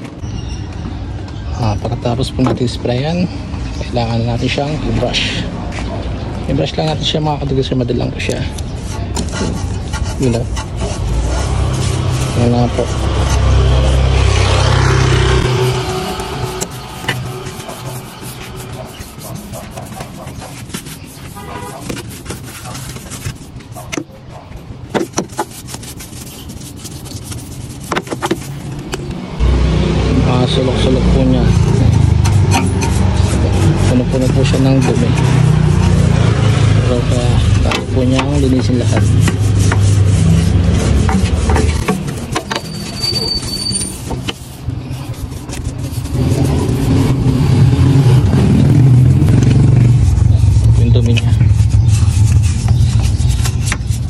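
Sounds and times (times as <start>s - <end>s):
paintbrush scrubbing: 8.1s - 29.0s, 30.1s - 54.0s
vehicle engine humming: 8.1s - 54.0s.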